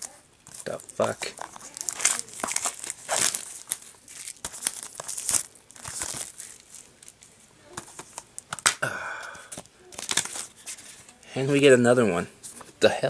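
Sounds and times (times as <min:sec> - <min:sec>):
plastic wrap crinkling and tearing: 0:00.0 - 0:08.8, 0:09.9 - 0:11.2.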